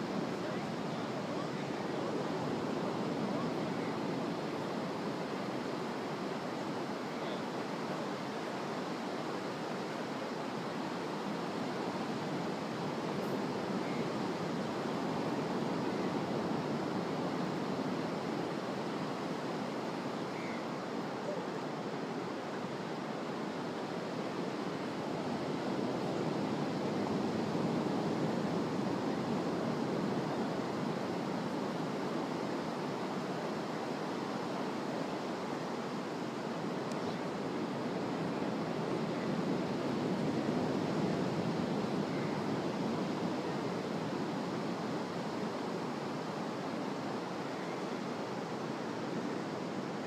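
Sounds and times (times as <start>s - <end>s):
ocean surf on beach: 0.0s - 50.0s.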